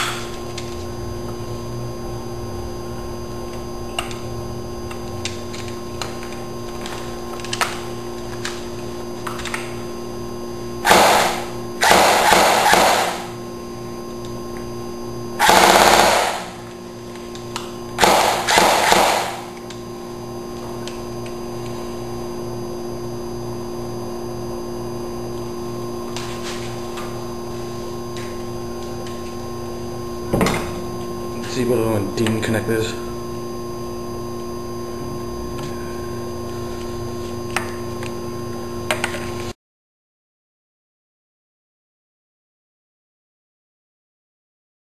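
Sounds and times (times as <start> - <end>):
airsoft gun firing bursts: 10.9 - 13.3, 15.4 - 16.6, 18.0 - 19.5.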